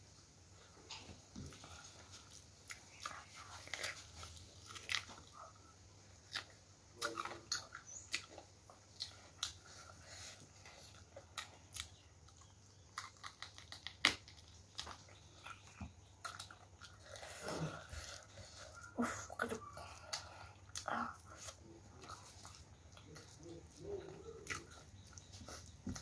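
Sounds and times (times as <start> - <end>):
person chewing food: 0.7 - 26.0.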